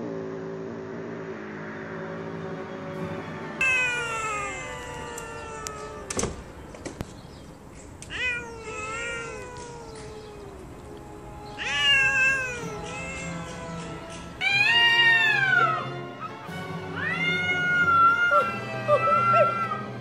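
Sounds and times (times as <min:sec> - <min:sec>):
cats yowling: 0:03.6 - 0:06.3, 0:08.0 - 0:20.0
sharp clicks: 0:04.6 - 0:08.2, 0:09.0 - 0:11.1.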